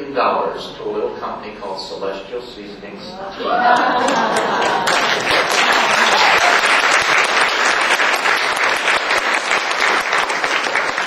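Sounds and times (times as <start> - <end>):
audience laughing: 3.2 - 6.5
audience applause: 3.5 - 11.0.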